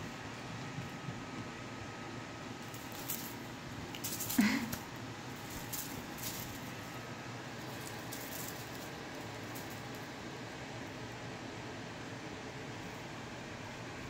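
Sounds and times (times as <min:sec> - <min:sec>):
steady hiss: 0:00.0 - 0:14.0
paws and feathers rustling: 0:02.6 - 0:10.2.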